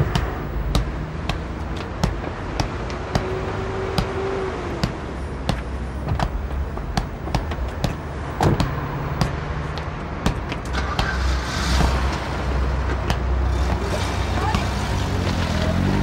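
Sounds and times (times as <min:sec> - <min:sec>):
small ball slapping: 0:00.0 - 0:14.7.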